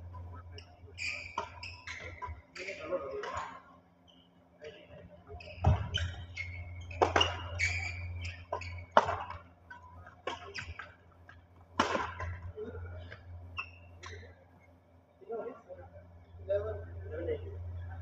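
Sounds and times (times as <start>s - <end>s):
shoes squeaking on court: 0.6s - 4.4s, 5.3s - 12.5s, 13.1s - 14.5s
rackets hitting shuttlecock: 6.9s - 12.5s
low hum: 11.5s - 18.0s.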